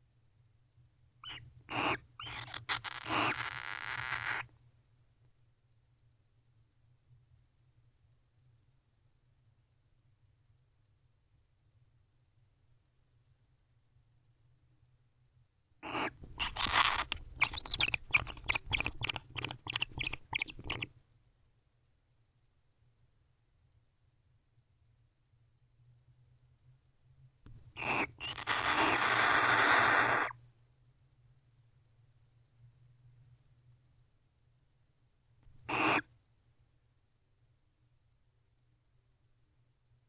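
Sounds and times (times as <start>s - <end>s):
owl harsh calls: 1.2s - 4.5s, 15.8s - 20.9s, 27.8s - 30.4s, 35.7s - 36.1s
owl hissing call: 1.2s - 4.5s, 15.8s - 20.9s, 27.8s - 30.4s, 35.6s - 36.1s.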